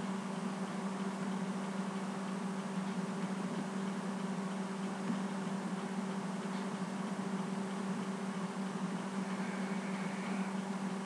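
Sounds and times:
low hum: 0:04.9 - 0:11.0.

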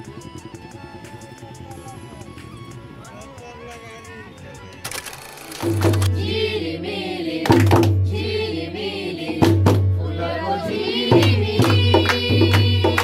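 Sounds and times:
women singing folk song: 0:06.0 - 0:13.0
hand claps: 0:07.4 - 0:08.0, 0:11.2 - 0:13.0.

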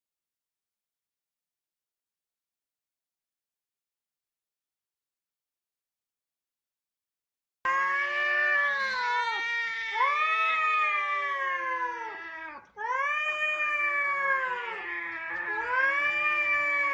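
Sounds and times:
cats yowling: 0:07.7 - 0:16.9.

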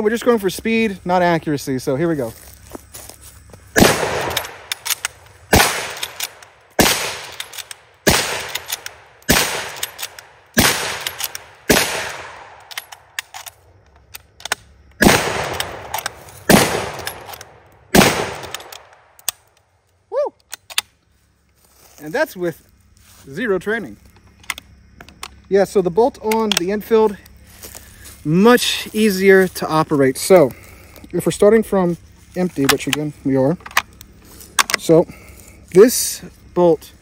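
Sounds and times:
rifle shots: 0:03.7 - 0:13.1, 0:15.0 - 0:19.1
rifle bolt clacking: 0:04.0 - 0:19.5.

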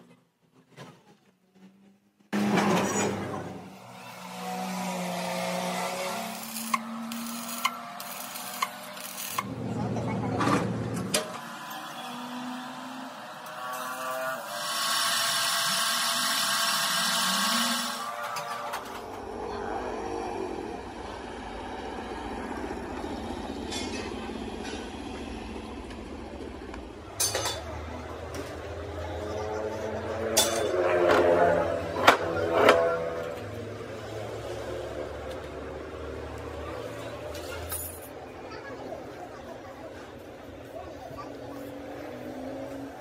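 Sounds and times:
vehicle engine rumbling: 0:18.2 - 0:38.1.

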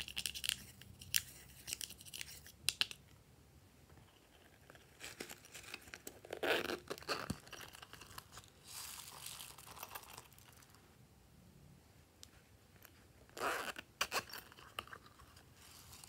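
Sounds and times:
zipper rasping open: 0:06.2 - 0:08.2, 0:13.3 - 0:14.9
foam beads rustling and pattering: 0:07.0 - 0:10.8.

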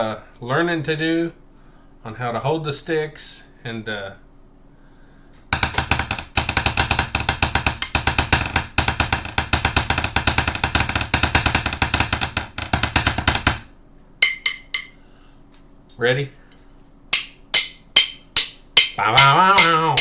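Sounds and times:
drumsticks on hard surface: 0:14.2 - 0:15.0, 0:16.5 - 0:20.0.

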